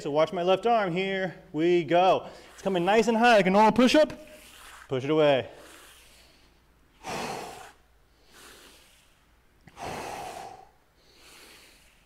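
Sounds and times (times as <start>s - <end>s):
man exhaling forcefully: 7.0s - 9.0s, 9.7s - 12.0s.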